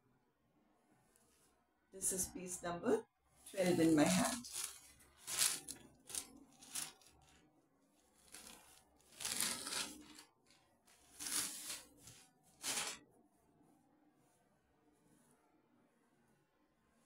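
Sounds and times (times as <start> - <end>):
fabric rustling and swishing: 3.3 - 7.4.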